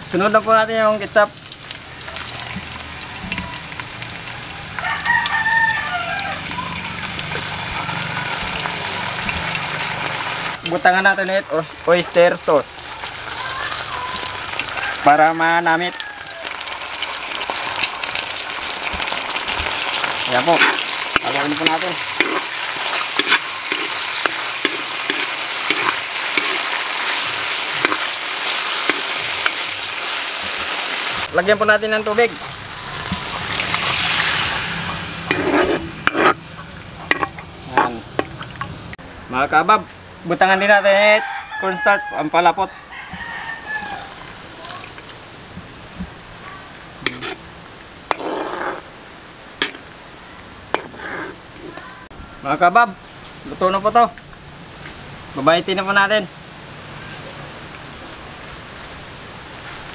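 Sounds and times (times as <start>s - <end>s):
vegetables sizzling in a wok: 0.0s - 39.0s, 43.1s - 52.1s
rooster crowing: 4.3s - 7.0s, 13.4s - 17.0s, 40.9s - 44.8s
ladle scraping a wok: 18.9s - 30.8s, 32.4s - 38.7s, 47.0s - 47.5s, 48.1s - 48.9s, 49.6s - 49.8s, 50.7s - 51.9s.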